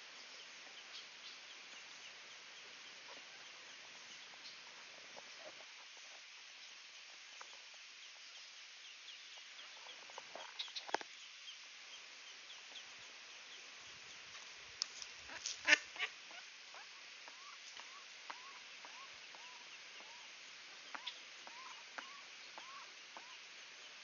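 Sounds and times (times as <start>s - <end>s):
ducklings peeping: 0.4s - 14.2s, 15.3s - 24.0s
duck quacking: 15.3s - 16.4s.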